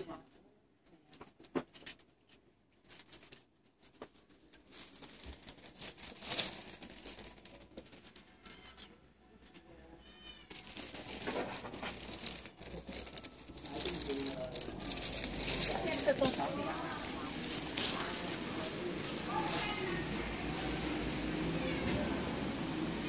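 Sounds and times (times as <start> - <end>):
clothing rustling against microphone: 1.7 - 8.8, 10.5 - 21.5
cat meowing: 10.0 - 10.7, 21.4 - 22.3.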